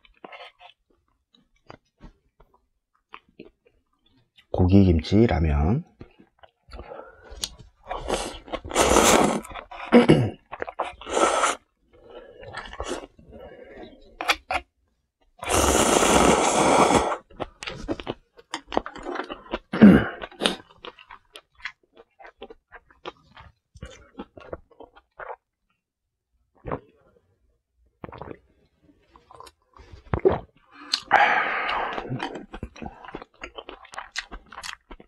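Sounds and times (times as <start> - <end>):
person slurping noodles: 7.8 - 14.2, 15.4 - 18.0, 30.0 - 33.3
chewing: 17.3 - 25.4, 29.1 - 35.0.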